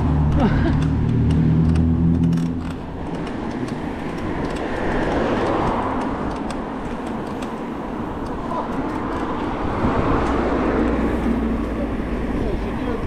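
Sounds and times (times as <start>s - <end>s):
vehicle engine hum: 0.0s - 13.0s
wind and tyre noise: 0.0s - 13.0s.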